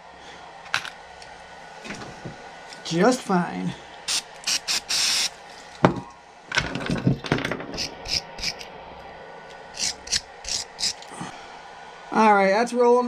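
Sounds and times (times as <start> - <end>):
tools clicking and scraping: 7.5 - 8.7, 9.8 - 11.1.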